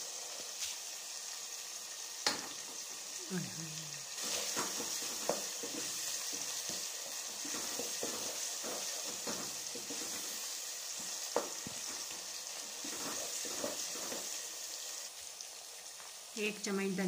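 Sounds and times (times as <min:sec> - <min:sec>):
sauce sizzling in a pot: 0:00.0 - 0:17.0
spatula stirring and scraping: 0:04.2 - 0:14.6.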